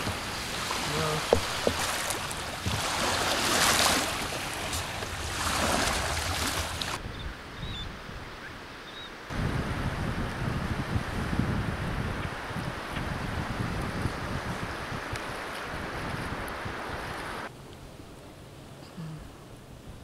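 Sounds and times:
small waves washing ashore: 0.0 - 7.6, 9.2 - 17.5
wind rumbling on microphone: 0.0 - 18.4.

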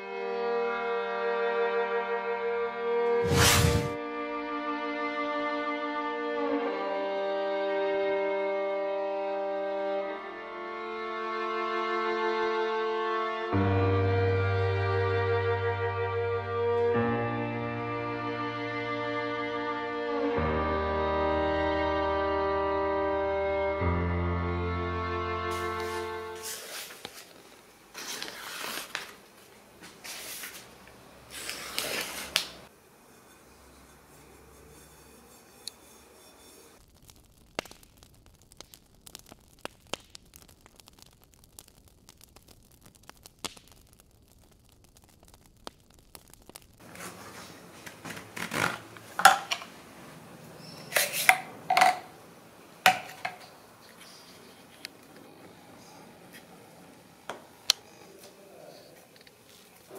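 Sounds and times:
rubbing and handling noise: 25.5 - 37.0, 46.8 - 49.7, 50.9 - 52.1
paper snapping: 31.4 - 32.6
paper tearing on a blade: 31.4 - 32.6.

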